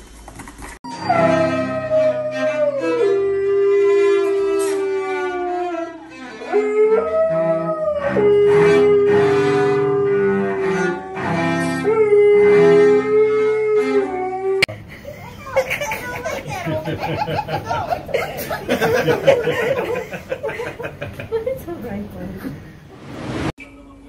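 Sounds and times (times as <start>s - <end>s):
cello bowed: 0.9s - 14.7s
dog howling: 0.9s - 14.7s.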